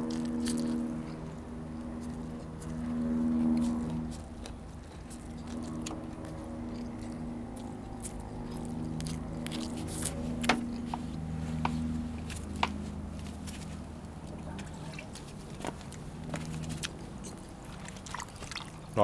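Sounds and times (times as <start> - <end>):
low humming tone: 0.0 - 19.0
person chewing: 0.0 - 19.0.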